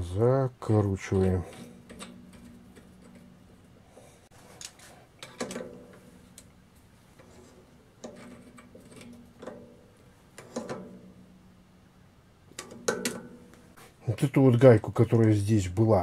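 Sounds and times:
metal parts knocking together: 4.6s - 6.5s, 12.5s - 13.6s.

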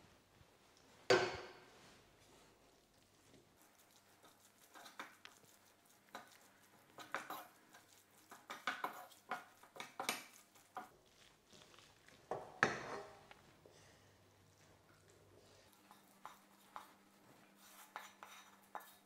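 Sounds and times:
spatula scraping frying pan: 7.0s - 11.3s, 12.4s - 13.3s.

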